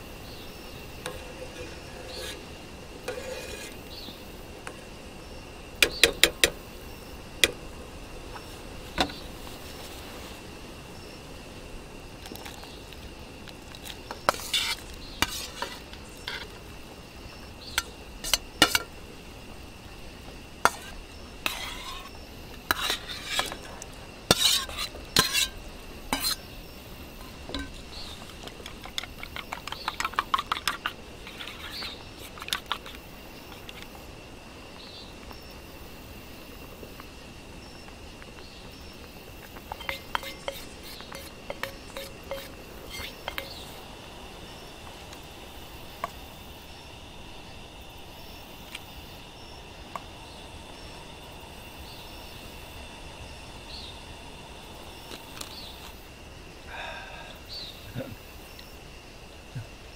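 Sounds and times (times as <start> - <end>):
utensils clinking against pots: 17.7 - 18.9, 27.2 - 32.8, 39.7 - 43.7
rapid taps in a bowl: 28.5 - 33.0.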